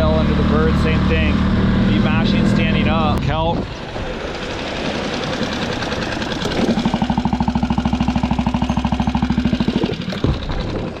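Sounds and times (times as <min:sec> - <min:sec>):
outboard motor running: 0:00.0 - 0:11.0
water rushing along hull: 0:03.2 - 0:09.6.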